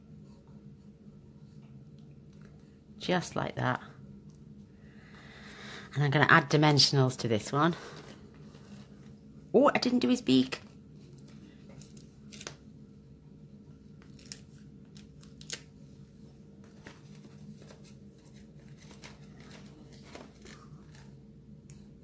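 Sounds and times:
low steady hum: 0.0s - 22.0s
paper rustling: 16.6s - 21.2s.

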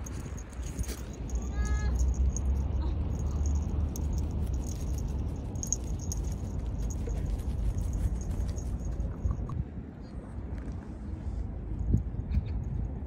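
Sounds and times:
dog collar tags jingling: 0.0s - 9.6s
low rumble: 0.0s - 13.0s.

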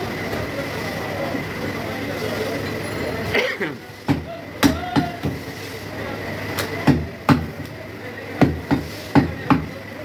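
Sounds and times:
cleaver chopping meat and bone: 4.1s - 5.4s, 6.8s - 7.7s, 8.4s - 9.7s.

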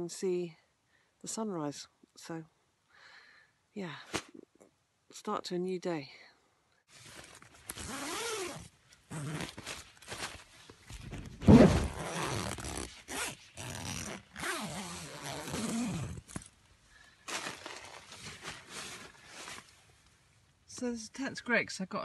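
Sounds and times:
tent zip being pulled: 6.9s - 10.4s, 11.1s - 16.5s, 17.2s - 19.8s
nylon fabric rustling: 6.9s - 20.1s.

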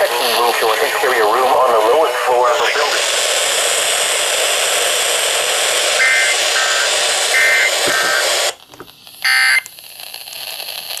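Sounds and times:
radio static hiss: 0.0s - 11.0s
warbling data bursts: 6.0s - 8.3s.

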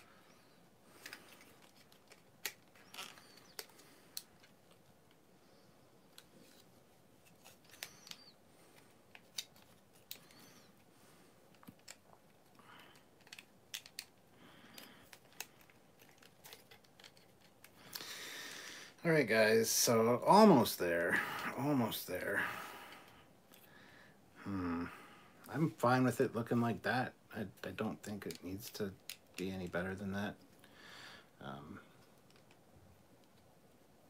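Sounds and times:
handling rustles: 0.0s - 17.9s
plastic clicks and snaps: 1.0s - 5.2s, 6.1s - 10.6s, 11.5s - 18.1s, 28.2s - 29.5s.

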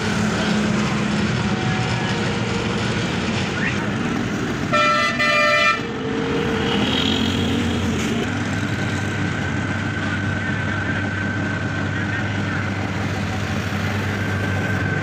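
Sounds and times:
machinery drone: 0.0s - 15.0s
street traffic: 0.0s - 15.0s
vehicle horn honks: 4.7s - 5.8s.

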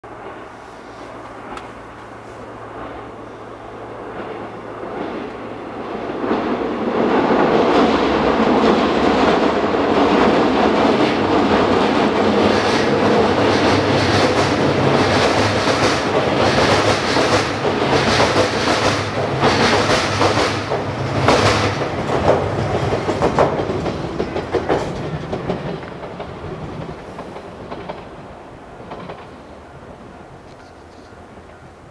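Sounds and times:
electric train running noise: 0.1s - 28.2s
wheels clacking over rail joints: 4.0s - 29.6s.

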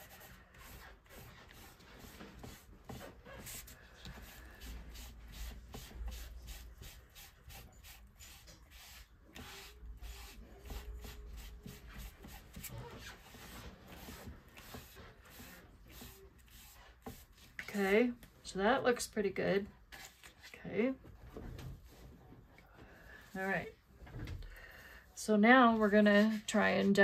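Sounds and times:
rubbing strokes on cardstock: 0.0s - 17.8s, 25.7s - 27.0s.

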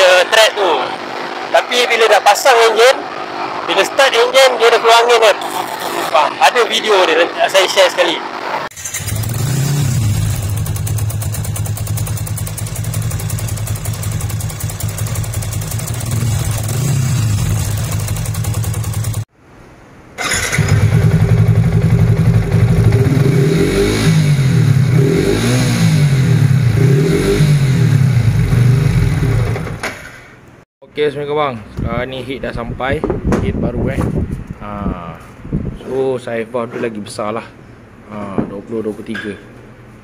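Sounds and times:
motorcycle engine idling and revving: 8.3s - 19.3s, 20.2s - 30.4s.

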